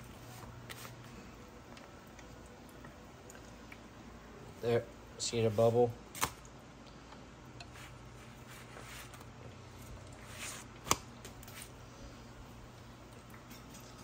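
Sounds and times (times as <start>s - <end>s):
faint steady hum: 0.0s - 14.0s
tortilla rustling in pan: 7.7s - 14.0s.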